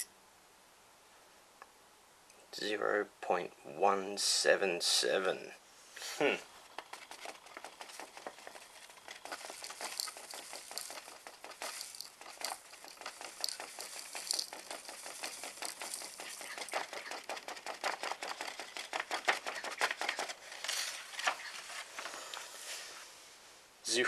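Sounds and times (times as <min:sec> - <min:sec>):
light ticks and rustles: 0:06.6 - 0:23.0
paper crinkling: 0:06.7 - 0:22.6.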